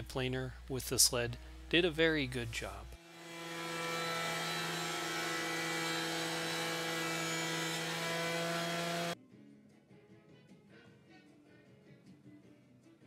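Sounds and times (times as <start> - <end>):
thickness planer running: 1.3 - 9.2.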